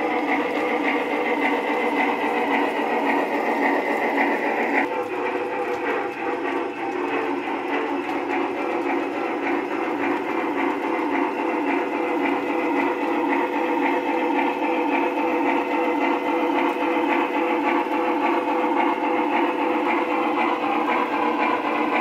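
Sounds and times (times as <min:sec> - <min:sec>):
wheels rattling along rails: 0:00.0 - 0:22.0.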